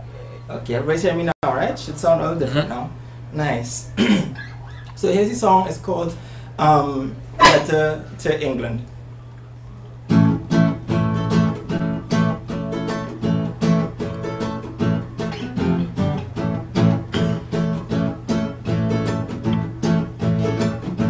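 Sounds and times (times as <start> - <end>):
acoustic guitar strumming: 7.4 - 7.9, 10.1 - 21.0.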